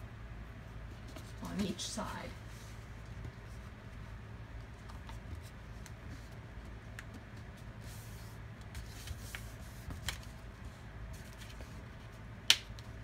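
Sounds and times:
steady low hum: 0.0s - 13.0s
paper being folded and creased: 7.8s - 10.4s.

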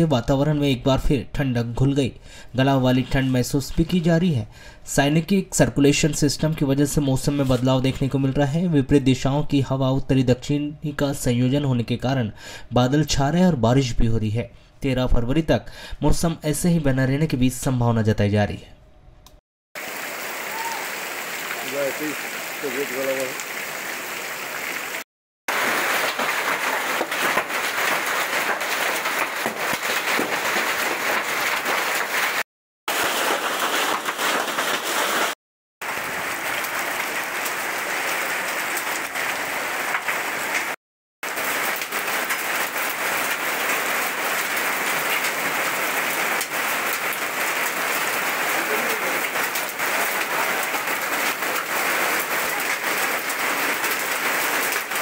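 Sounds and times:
heavy rain and hail on pavement: 19.8s - 55.0s.

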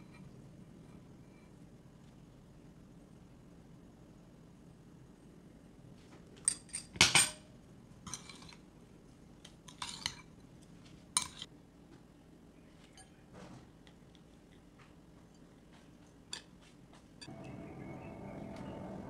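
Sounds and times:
tableware clinking: 8.1s - 8.6s, 9.7s - 10.3s.

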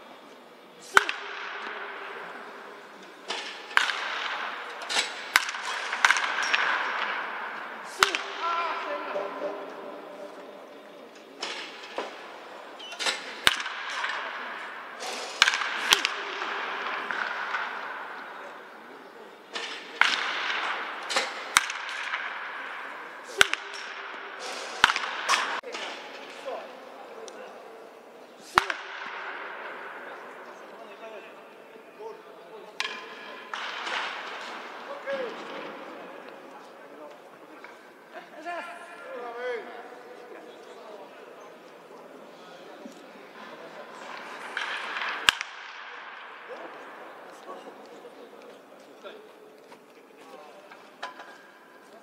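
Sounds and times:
steady background din: 0.0s - 52.0s
baseball bats hitting balls: 0.8s - 27.6s, 28.2s - 31.6s, 32.7s - 38.1s, 43.5s - 48.0s.

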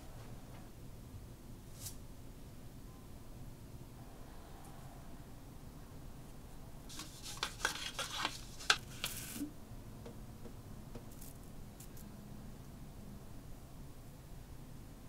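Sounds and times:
bottle brush bristles rustling: 6.9s - 9.5s.

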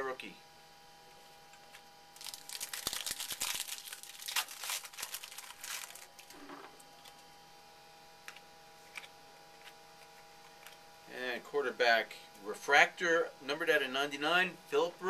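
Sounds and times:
trading card packaging rustling: 2.2s - 6.4s.

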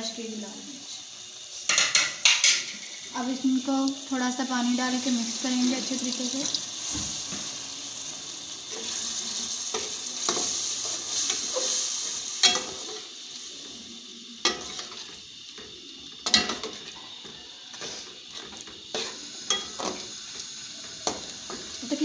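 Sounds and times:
onions and spices sizzling: 0.0s - 22.0s
spatula clacking against pan: 1.7s - 2.8s.

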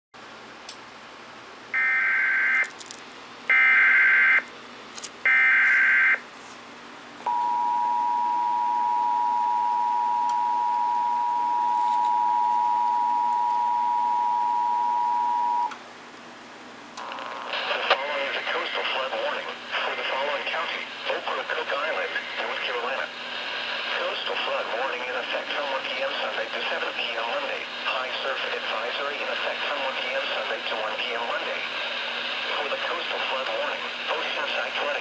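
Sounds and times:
two-tone attention signal: 7.3s - 15.7s.

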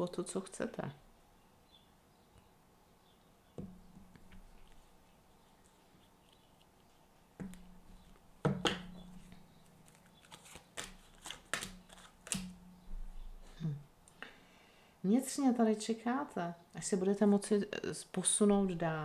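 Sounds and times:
cards clicking and slapping: 9.8s - 12.6s.

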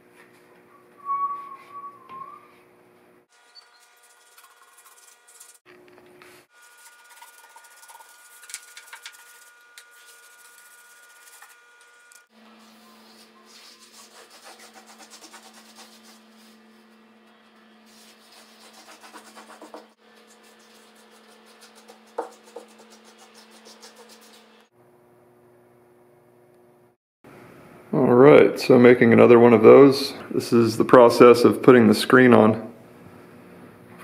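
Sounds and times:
paintbrush brushing on plywood: 6.7s - 11.7s, 12.4s - 24.6s.

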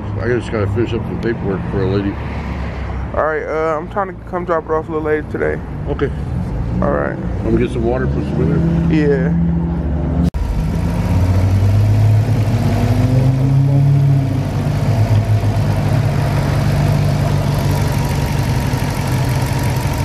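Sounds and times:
car engine idling: 10.4s - 20.0s.

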